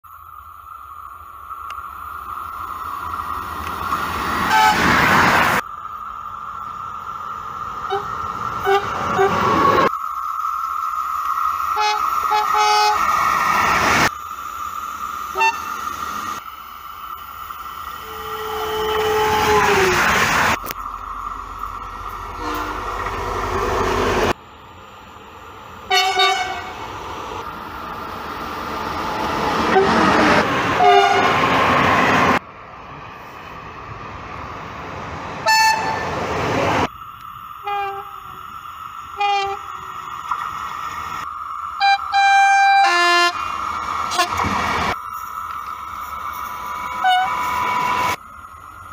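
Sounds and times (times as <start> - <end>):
passing train rush and rumble: 0.1 - 48.9
train horn blasts: 4.5 - 4.9, 7.9 - 9.5, 11.8 - 13.0, 15.4 - 15.7, 18.0 - 20.0, 22.4 - 22.9, 25.9 - 26.7, 29.7 - 30.2, 30.8 - 31.4, 35.4 - 36.0, 37.6 - 38.2, 39.2 - 39.7, 41.8 - 43.4, 44.1 - 44.4, 47.0 - 47.5.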